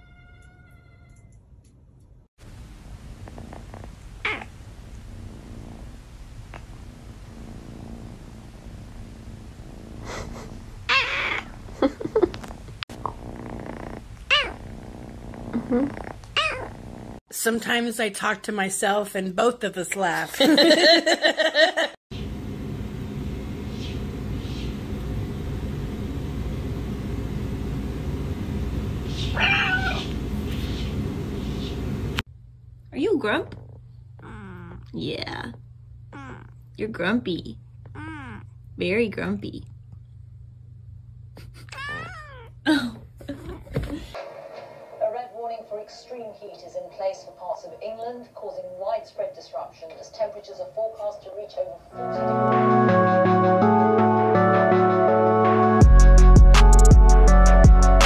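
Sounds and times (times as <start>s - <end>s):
cat meowing: 0.0s - 1.3s, 4.2s - 4.5s, 10.9s - 11.5s, 14.3s - 14.6s, 16.4s - 16.7s, 29.2s - 30.2s, 34.2s - 34.9s, 36.1s - 36.6s, 37.9s - 38.5s, 41.7s - 42.6s
steady low rumble: 2.5s - 10.9s, 22.2s - 34.2s
cat purring: 3.0s - 17.2s, 33.4s - 36.7s.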